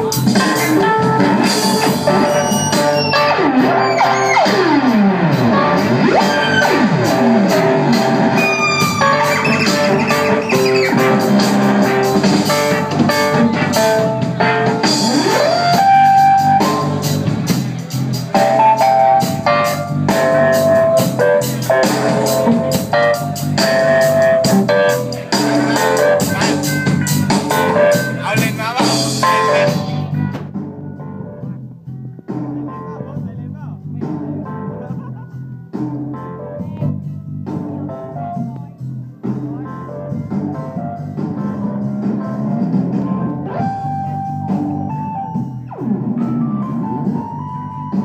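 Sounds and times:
live band playing dub music: 0:00.0 - 0:48.0
rising pitch glide: 0:01.8 - 0:12.2.

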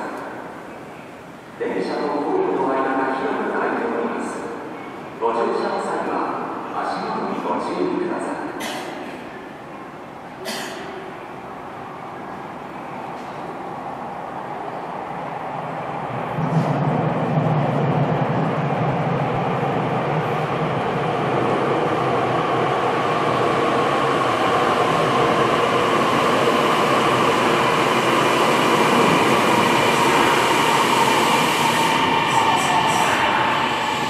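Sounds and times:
train whine: 0:09.1 - 0:34.0
train rumble: 0:10.2 - 0:34.0.

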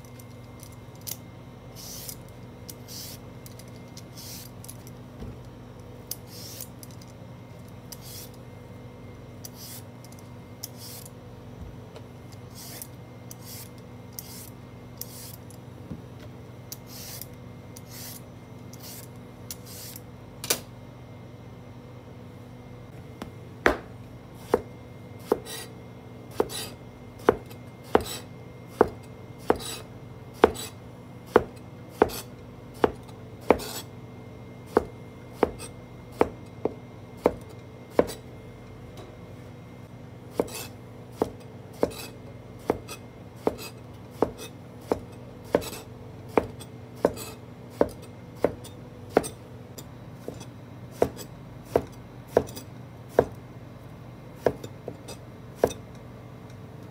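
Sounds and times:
knife chopping on cutting board: 0:23.2 - 0:25.7, 0:26.3 - 0:29.8, 0:30.4 - 0:33.9, 0:34.7 - 0:38.2, 0:40.3 - 0:49.4, 0:50.2 - 0:53.4, 0:54.4 - 0:55.8.

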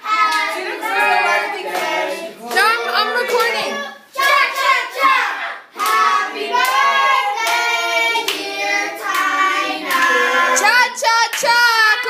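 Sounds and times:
group singing: 0:00.0 - 0:11.0.

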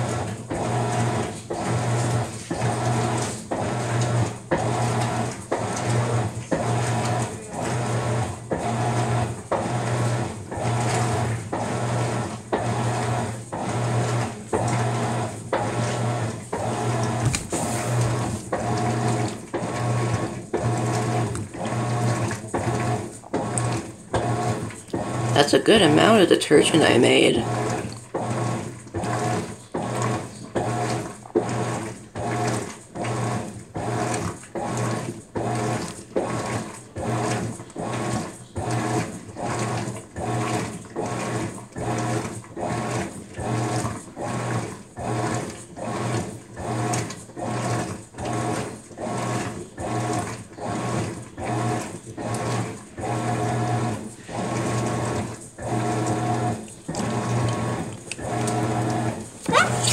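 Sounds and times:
washing machine motor humming: 0:00.0 - 0:59.9
water swishing: 0:16.8 - 0:19.4.

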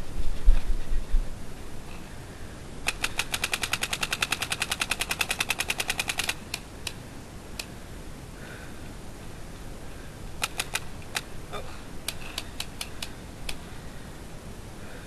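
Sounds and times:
paintball marker firing: 0:02.9 - 0:06.6.

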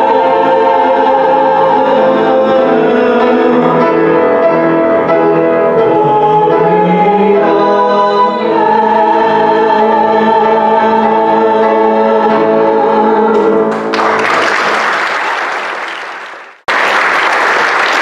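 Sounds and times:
man singing into microphone: 0:00.0 - 0:04.7, 0:05.7 - 0:13.6
musical backing: 0:00.0 - 0:18.0
audience applause: 0:13.7 - 0:18.0.

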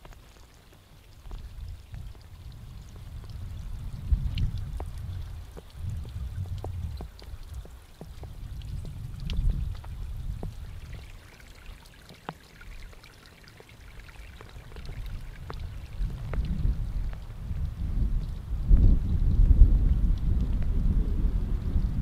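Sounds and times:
water drops falling: 0:00.0 - 0:20.7.

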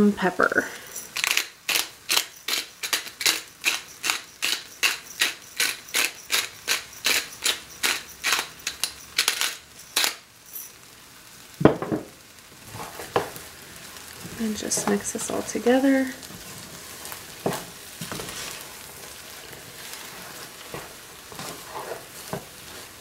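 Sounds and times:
pepper grinder ratcheting clicks: 0:01.1 - 0:10.2.

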